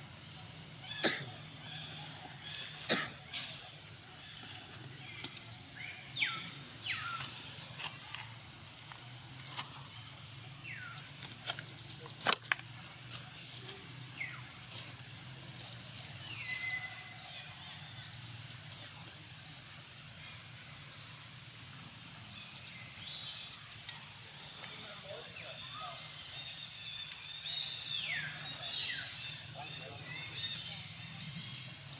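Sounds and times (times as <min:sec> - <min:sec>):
falling bird calls: 0:00.8 - 0:08.4.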